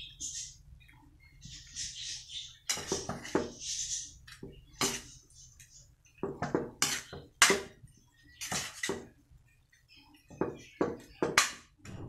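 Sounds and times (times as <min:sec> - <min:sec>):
metal spatula scraping a wok: 0:01.4 - 0:05.5, 0:06.5 - 0:07.7, 0:08.3 - 0:09.1.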